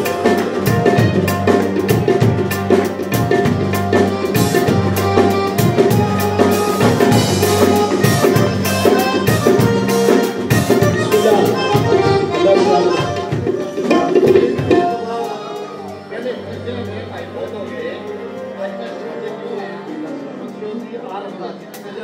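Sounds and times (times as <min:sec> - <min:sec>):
electric bass line: 0:00.0 - 0:13.1
harmonium chords: 0:00.0 - 0:21.8.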